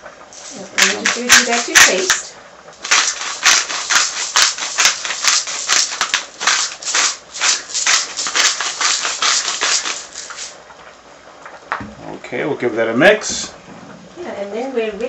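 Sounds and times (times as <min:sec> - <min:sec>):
salt grinder crunching: 0:00.8 - 0:10.6.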